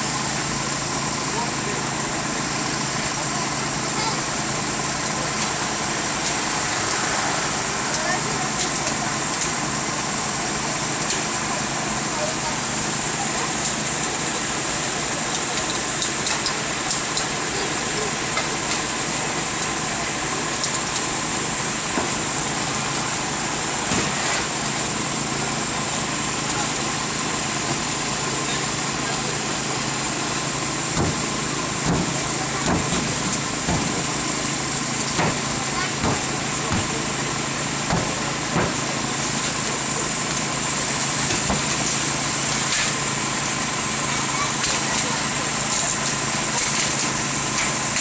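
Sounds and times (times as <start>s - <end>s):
engine running steadily: 0.0s - 48.0s
sharp knocks: 31.0s - 34.1s, 35.2s - 37.0s, 37.9s - 38.8s.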